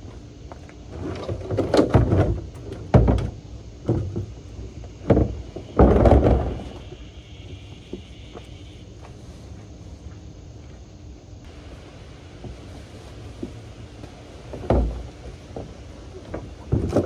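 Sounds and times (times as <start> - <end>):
plastic bins scraping: 0.9 - 6.9, 12.2 - 17.0
plastic bins thudding and banging: 0.9 - 6.9, 12.3 - 17.0.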